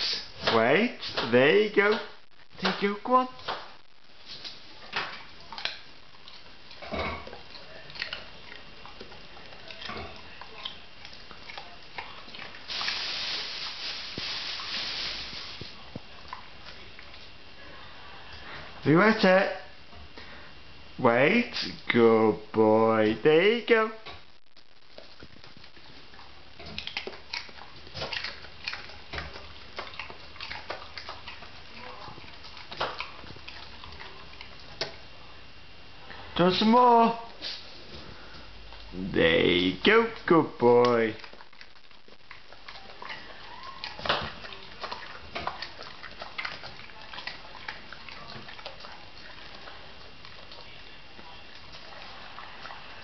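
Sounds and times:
dog crunching on a carrot: 3.6 - 17.5, 24.9 - 35.7, 36.5 - 53.0.

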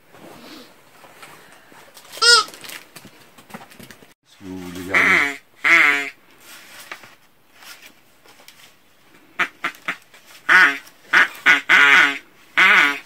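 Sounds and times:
bird call whistle: 2.2 - 2.5.

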